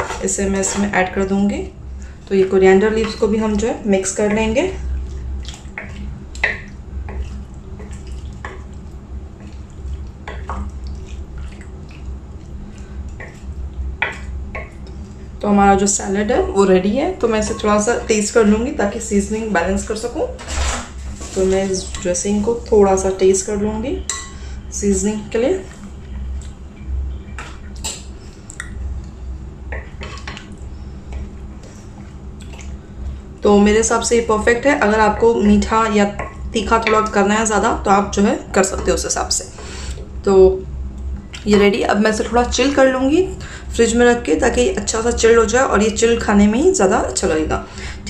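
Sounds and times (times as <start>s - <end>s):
low steady hum: 0.0s - 48.0s
soft wet squelching: 1.9s - 15.5s, 29.8s - 35.4s
spatula stirring salad in bowl: 2.2s - 15.1s.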